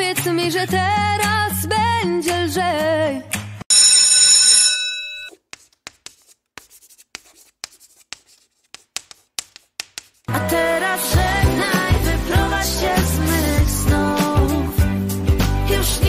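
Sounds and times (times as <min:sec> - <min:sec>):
bright bell ring: 0:03.7 - 0:05.3
chalk tapping on blackboard: 0:05.3 - 0:10.3.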